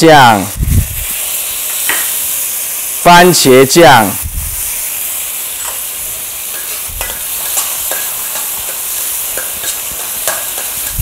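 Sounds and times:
food sizzling in oil: 0.0 - 11.0
metal spatula scraping wok: 5.5 - 11.0
spatula clicking on pan: 6.5 - 11.0.

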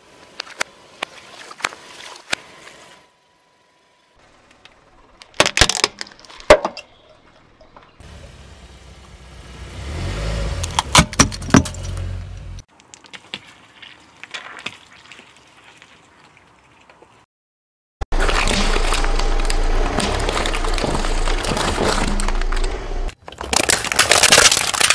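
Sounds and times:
low rumble of rolling car: 2.6 - 12.7, 18.1 - 23.2
tyre crushing small objects: 5.2 - 7.0, 18.2 - 24.9.

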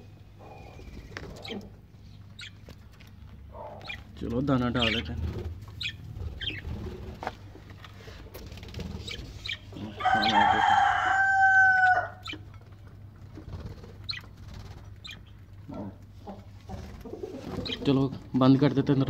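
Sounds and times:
rooster crowing: 9.8 - 12.2.

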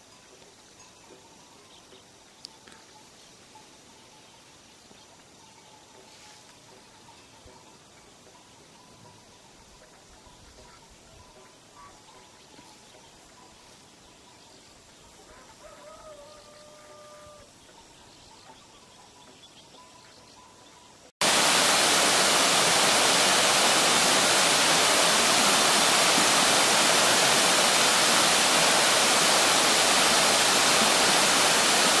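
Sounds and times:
waterfall rushing: 21.2 - 32.0.

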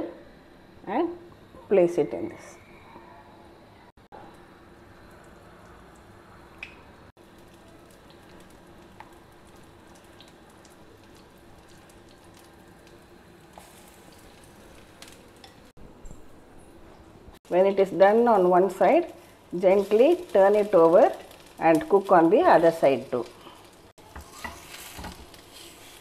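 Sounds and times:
oil sizzling in pan: 4.4 - 15.8, 17.4 - 26.0.

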